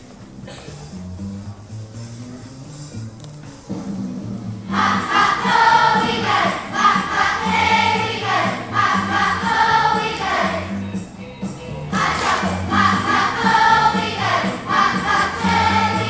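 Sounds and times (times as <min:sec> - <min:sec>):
instrumental accompaniment: 0:00.0 - 0:16.0
children's choir singing: 0:04.7 - 0:11.0, 0:11.8 - 0:16.0.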